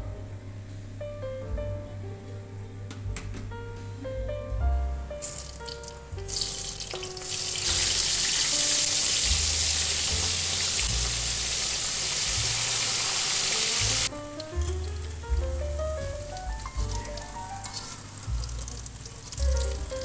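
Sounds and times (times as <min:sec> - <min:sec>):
soft background music: 0:00.0 - 0:20.0
food sizzling in hot oil: 0:05.2 - 0:15.4, 0:16.0 - 0:20.0.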